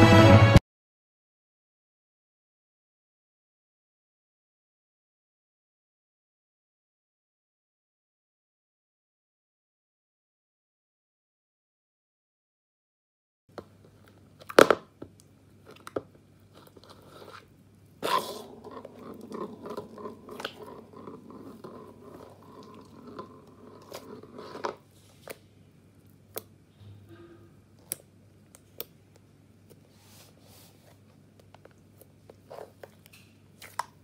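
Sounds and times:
slime squelching: 13.6 - 26.7, 27.7 - 34.0.

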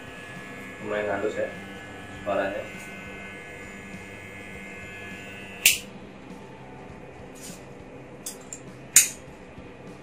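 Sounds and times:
hair clipper humming: 0.0 - 5.9.

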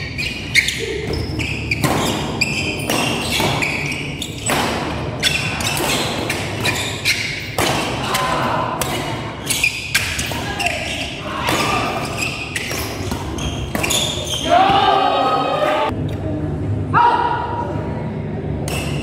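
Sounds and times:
shoes squeaking on court: 0.0 - 8.2, 8.8 - 14.7
racket hitting shuttlecock: 1.8 - 9.0.

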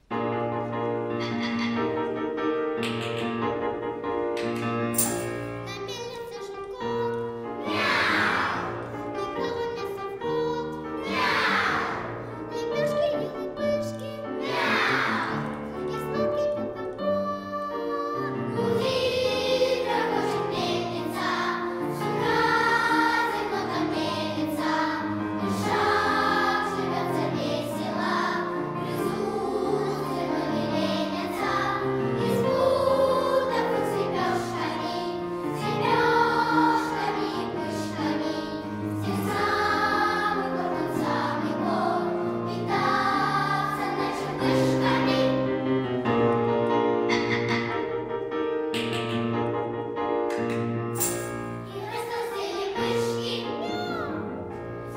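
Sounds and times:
piano accompaniment: 0.0 - 54.9
children's choir singing: 6.8 - 46.0, 51.1 - 54.6.

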